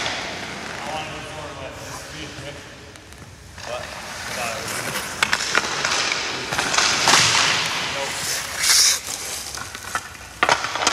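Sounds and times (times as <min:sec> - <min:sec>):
skate blades scraping ice: 0:03.7 - 0:10.9.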